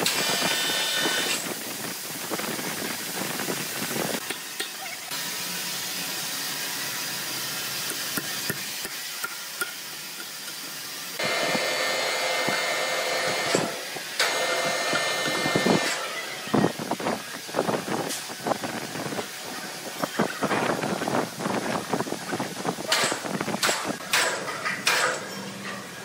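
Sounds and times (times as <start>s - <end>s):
steady hiss: 0.0s - 11.2s, 15.6s - 24.1s
band saw whining: 11.2s - 16.6s.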